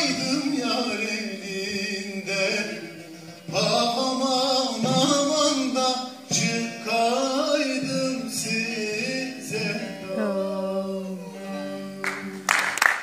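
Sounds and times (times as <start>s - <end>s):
man singing folk song: 0.0s - 12.0s
plucked string instrument: 0.0s - 13.0s
applause: 12.0s - 13.0s.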